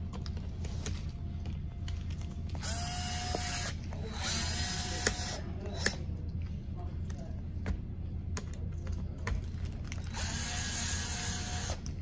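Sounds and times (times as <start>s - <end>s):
electric screwdriver whining: 2.6s - 6.0s, 10.1s - 11.8s.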